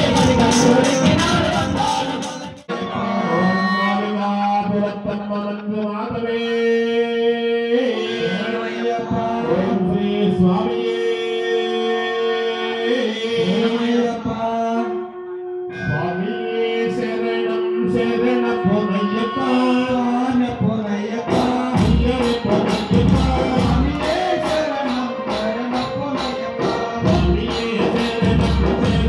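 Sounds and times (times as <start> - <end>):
heavy drumming: 0.0 - 2.8, 20.6 - 29.0
instrumental backing: 0.0 - 4.0, 7.9 - 29.0
man singing: 0.0 - 29.0
sustained tones: 8.0 - 20.5.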